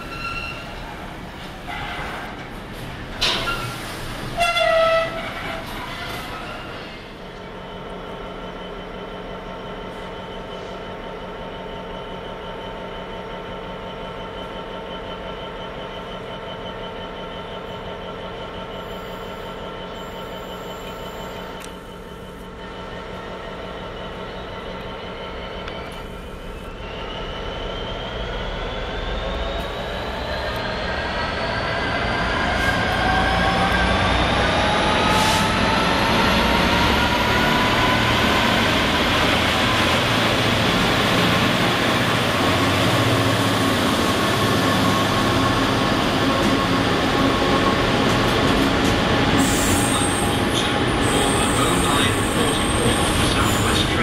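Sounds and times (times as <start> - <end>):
high wheel squeal: 0.0 - 0.9, 49.3 - 54.0
diesel locomotive engines: 0.0 - 54.0.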